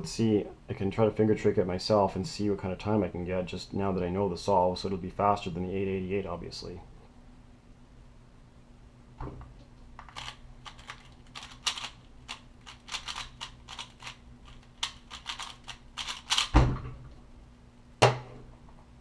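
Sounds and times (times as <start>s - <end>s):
puzzle cube plastic clicks: 10.0s - 16.6s.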